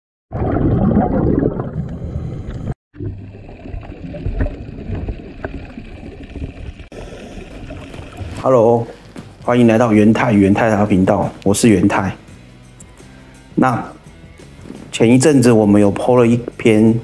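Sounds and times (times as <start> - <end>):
underwater rumbling water: 0.3 - 8.5.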